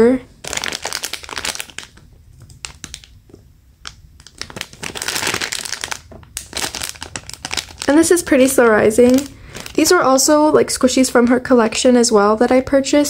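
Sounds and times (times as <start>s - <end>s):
plastic packaging crinkling: 0.4s - 10.3s.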